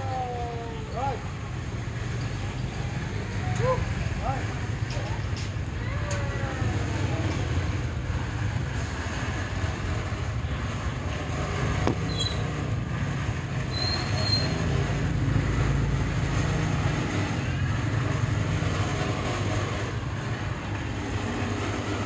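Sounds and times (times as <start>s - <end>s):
engine rumbling: 0.0s - 22.0s
short high squeaks: 12.0s - 12.6s, 13.7s - 14.7s.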